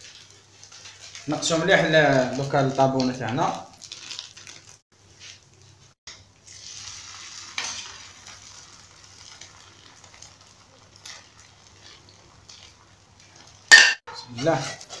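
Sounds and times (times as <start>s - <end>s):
food sizzling on griddle: 0.0s - 2.8s, 6.4s - 15.0s.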